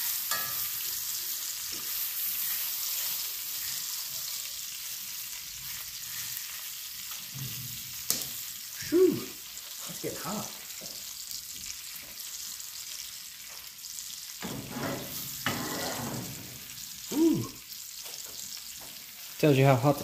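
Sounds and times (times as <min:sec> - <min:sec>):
meat sizzling in skillets: 0:00.0 - 0:20.0
tongs knocking and scraping pan: 0:00.2 - 0:00.8, 0:14.4 - 0:16.5.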